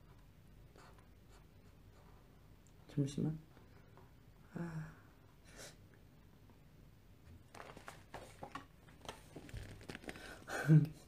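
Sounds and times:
paper book rustling: 0:07.5 - 0:10.5.

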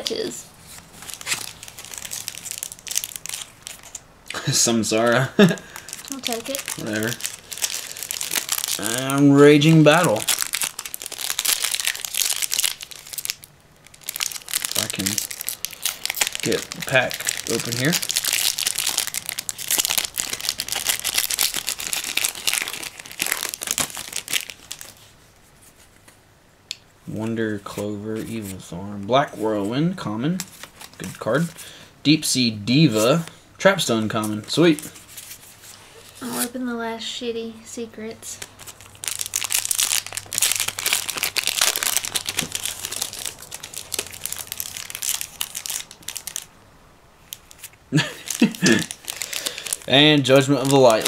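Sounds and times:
foil wrapper crinkling and tearing: 0:00.7 - 0:04.0, 0:05.4 - 0:25.1, 0:38.4 - 0:46.5, 0:47.2 - 0:51.0.

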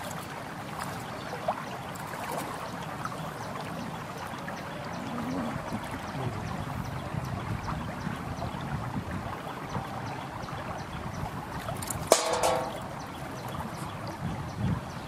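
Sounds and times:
sharp knock with ring: 0:12.1 - 0:12.8.

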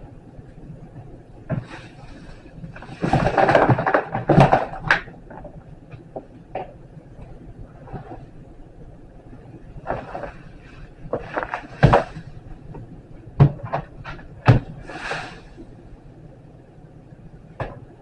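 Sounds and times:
rustling: 0:09.8 - 0:12.8.

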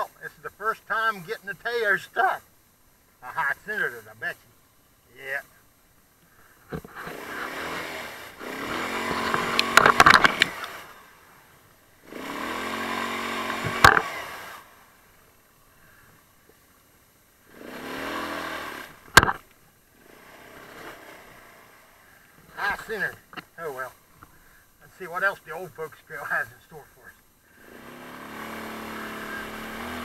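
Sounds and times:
quad engine revving: 0:06.7 - 0:11.2, 0:12.0 - 0:14.8, 0:17.5 - 0:19.4, 0:20.0 - 0:22.0, 0:27.6 - 0:30.0.

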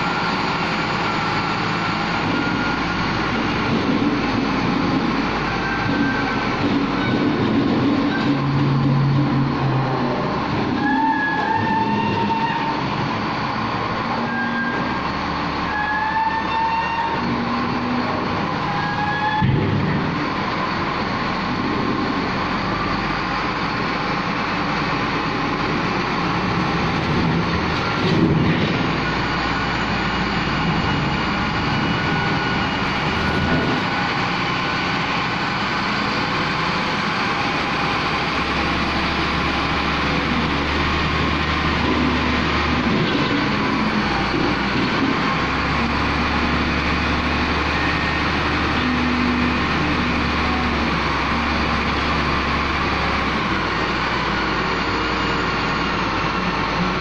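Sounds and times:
wheel loader diesel engine: 0:00.0 - 0:57.0
short high squeals: 0:10.8 - 0:12.9, 0:15.6 - 0:17.4.

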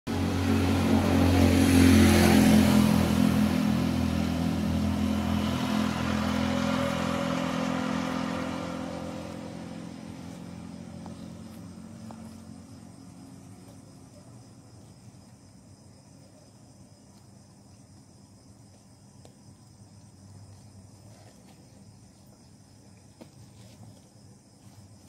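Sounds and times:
vehicle engine running: 0:00.1 - 0:15.2.

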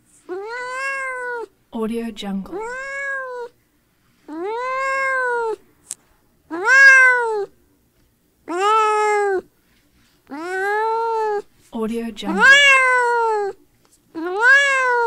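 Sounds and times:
cat meowing: 0:00.3 - 0:01.5, 0:02.6 - 0:03.6, 0:04.3 - 0:05.6, 0:06.5 - 0:07.6, 0:08.5 - 0:09.5, 0:10.3 - 0:11.5, 0:12.3 - 0:13.6, 0:14.2 - 0:15.0.

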